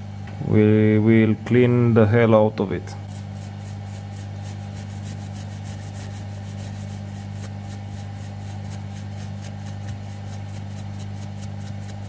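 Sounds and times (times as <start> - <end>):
steady low hum: 0.0 - 12.0
toothbrush scrubbing circuit board: 3.0 - 12.0.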